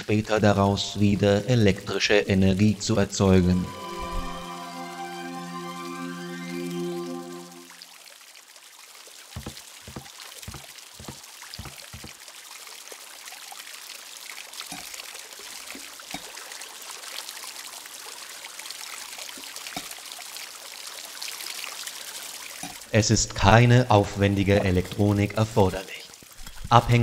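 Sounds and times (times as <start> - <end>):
water pouring trickle: 6.7 - 27.0.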